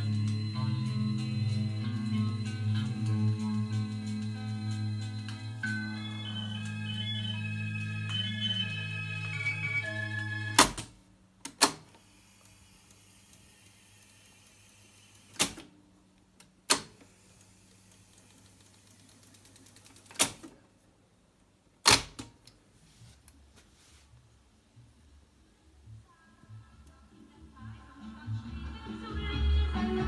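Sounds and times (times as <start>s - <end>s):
organ music from tape: 0.0s - 10.9s, 26.5s - 30.0s
faint hum: 0.0s - 11.3s.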